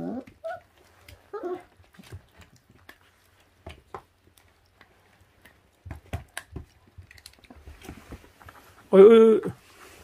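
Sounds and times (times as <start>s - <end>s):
puppies chewing wet meat: 0.0s - 7.9s.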